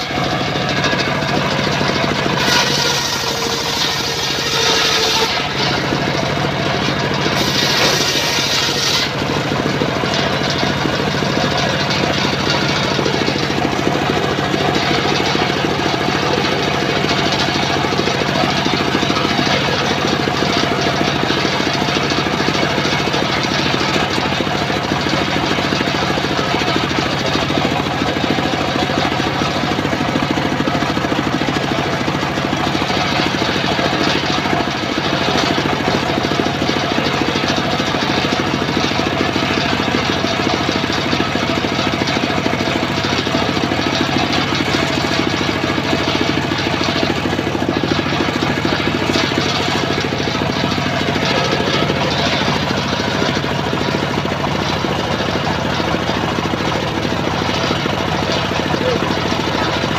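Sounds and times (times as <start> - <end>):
circular saw cutting wood: 0.0 - 59.9.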